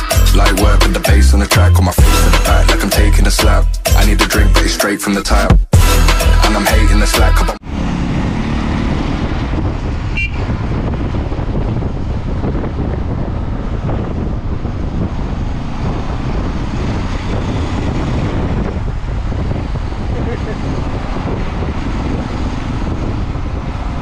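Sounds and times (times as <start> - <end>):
car road and wind noise: 6.7 - 24.0
car horn toot: 10.1 - 10.6.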